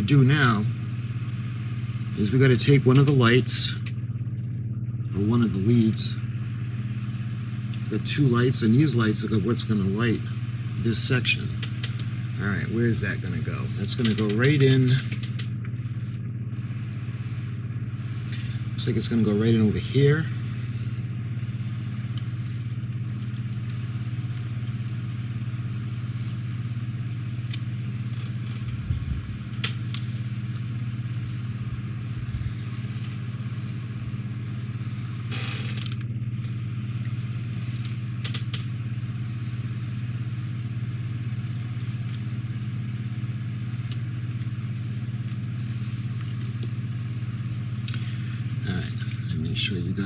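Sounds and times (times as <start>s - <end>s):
low room hum: 0.0s - 50.0s
plastic parts and wires rustling: 13.8s - 16.3s, 22.0s - 34.0s, 35.1s - 38.8s, 41.5s - 49.3s.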